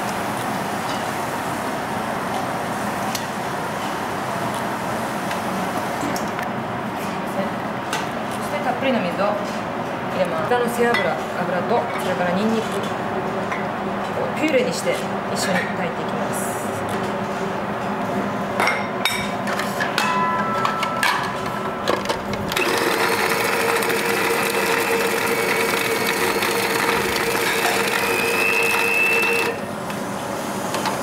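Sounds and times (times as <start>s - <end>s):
food processor motor running: 22.5s - 29.6s.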